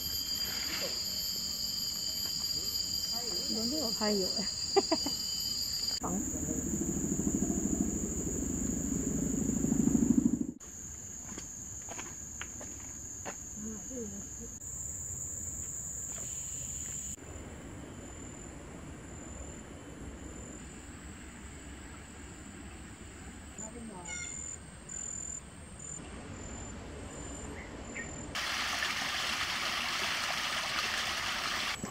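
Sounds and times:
insects droning: 0.0s - 31.9s
low buzzing rattle: 6.0s - 10.6s.

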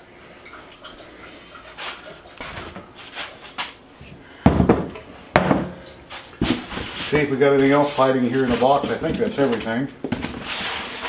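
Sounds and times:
handling rustling and scraping: 1.8s - 4.2s, 5.9s - 11.0s
heavy machine thudding on workbench: 4.4s - 5.7s.

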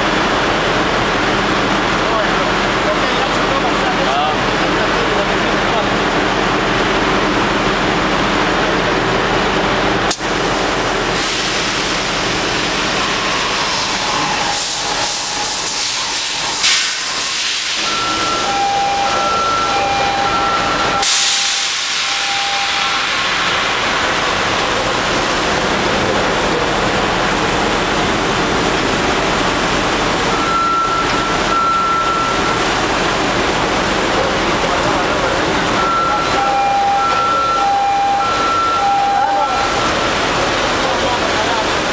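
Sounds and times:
engine room machinery: 0.0s - 41.9s
hissing rush of air: 10.1s - 18.2s, 21.0s - 25.4s
short high beeps: 17.8s - 23.2s, 30.3s - 32.6s, 35.7s - 40.1s.

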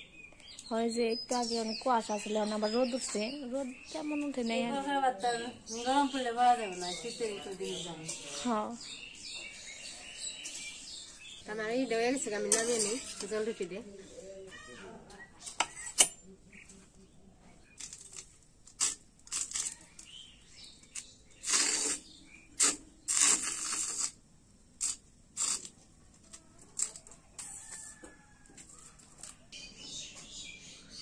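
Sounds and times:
batter scraping in metal pan: 12.4s - 13.6s, 17.7s - 24.2s.

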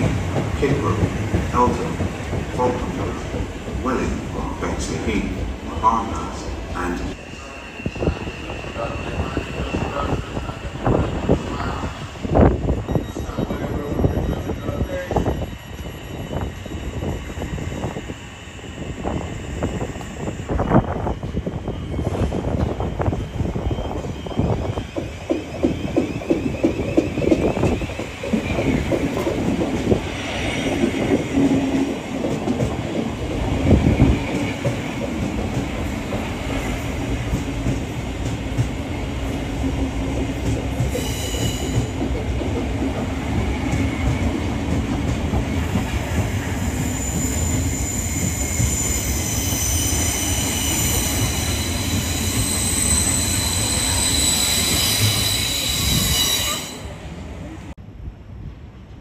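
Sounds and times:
train rumbling: 0.0s - 59.0s
high wheel squeal: 7.1s - 10.5s, 46.5s - 57.0s.

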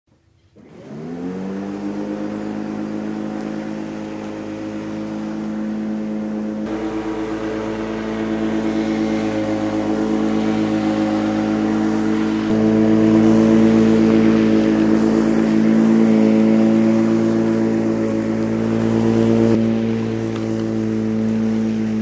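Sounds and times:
electric lawn mower motor whine: 0.2s - 22.0s.

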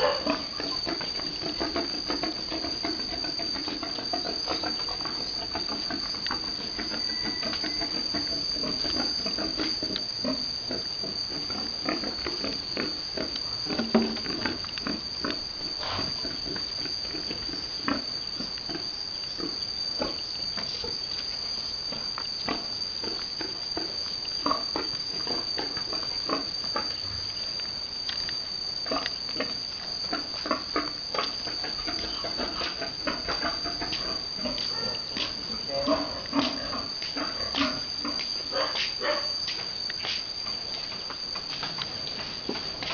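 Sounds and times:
steady high-pitched whine: 0.0s - 42.9s
pigs grunting: 35.5s - 37.8s.

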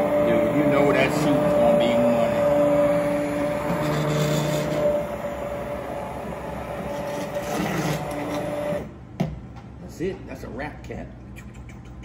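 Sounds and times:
immersion blender whining: 0.0s - 8.9s.

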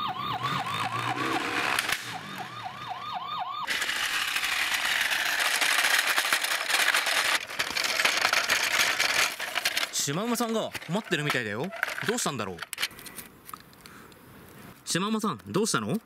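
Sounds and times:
toy police siren wailing: 0.0s - 7.0s
plastic wheels crunching on gravel: 3.7s - 12.8s.

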